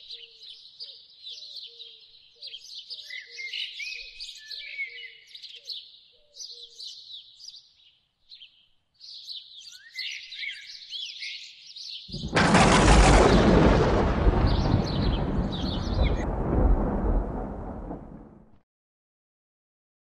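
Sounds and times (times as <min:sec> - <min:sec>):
small birds chirping: 0:00.0 - 0:12.3, 0:14.4 - 0:16.4
thunder crash and rumble: 0:12.1 - 0:18.5.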